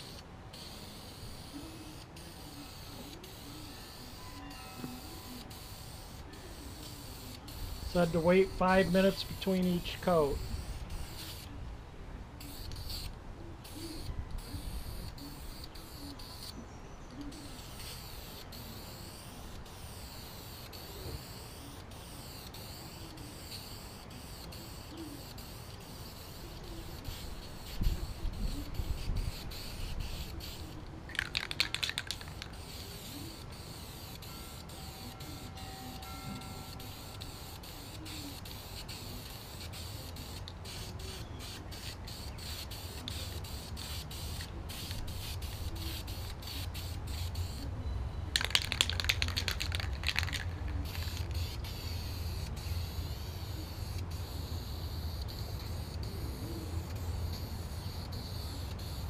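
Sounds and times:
aerosol spray can hissing: 0.0s - 4.2s, 4.9s - 11.5s, 12.4s - 16.5s, 17.3s - 35.5s, 36.6s - 47.6s, 48.4s - 59.0s
burst of clicks: 31.1s - 32.6s, 48.4s - 51.4s.

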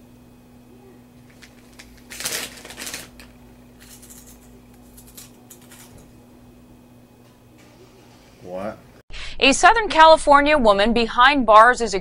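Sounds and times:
low electrical hum: 0.0s - 12.0s
chips crunching while eaten: 1.2s - 5.8s
plastic chip bag crinkling: 1.2s - 5.9s.

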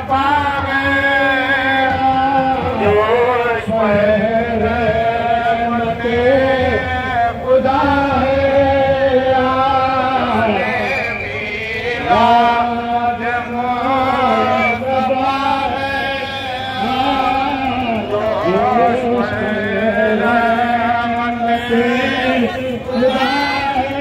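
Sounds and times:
person chanting through loudspeaker: 0.0s - 24.0s.

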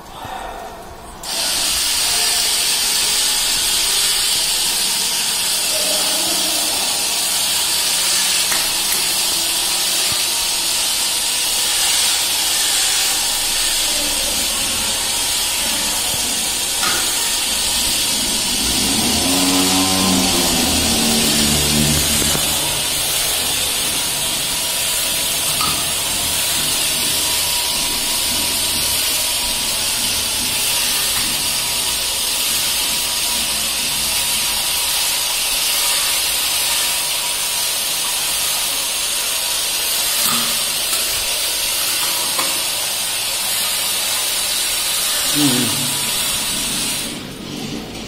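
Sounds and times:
low motor hum: 13.3s - 34.6s.

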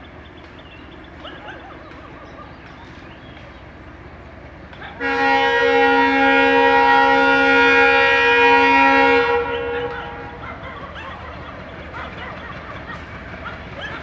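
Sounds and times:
locomotive air horn blast: 5.0s - 10.4s.

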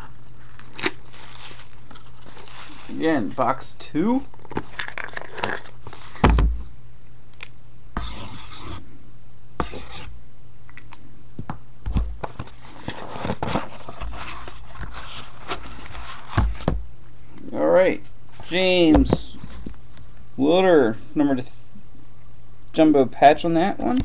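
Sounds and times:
cardboard scraping and rustling: 0.6s - 3.0s, 12.2s - 16.8s.

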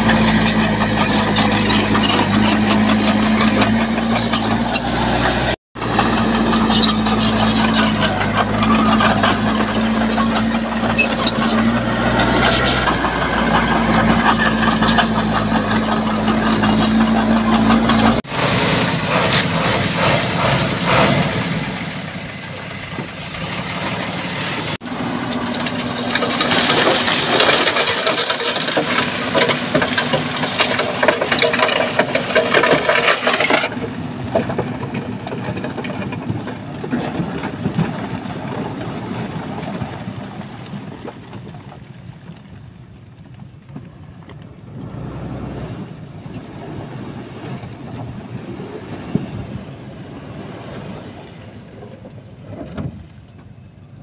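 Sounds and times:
heavy diesel machinery working: 0.0s - 40.9s.

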